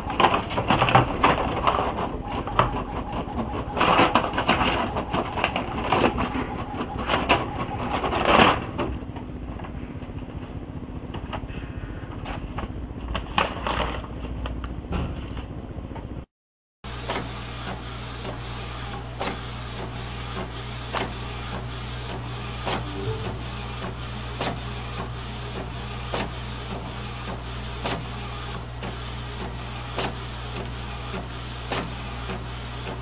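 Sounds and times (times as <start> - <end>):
printer running: 0.0 - 9.0
low hum: 22.8 - 24.0.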